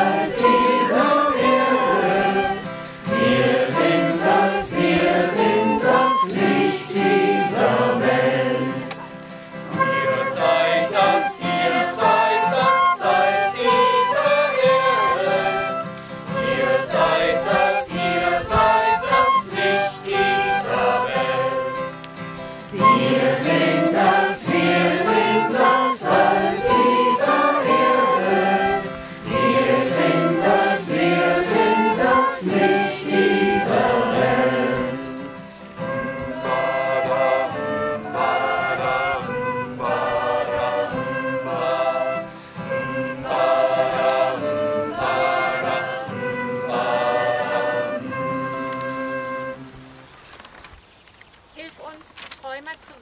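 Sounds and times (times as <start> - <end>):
choir singing a hymn: 0.0 - 49.7
flute: 0.0 - 50.5
guitar: 0.0 - 50.6.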